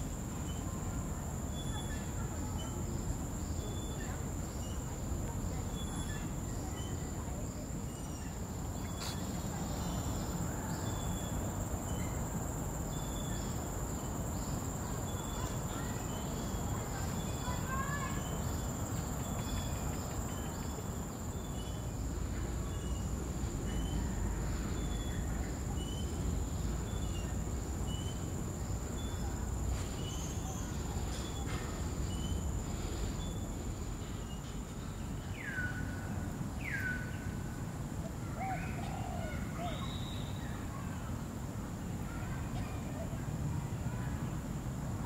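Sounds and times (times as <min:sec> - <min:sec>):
bird call: 0:38.4 - 0:40.6.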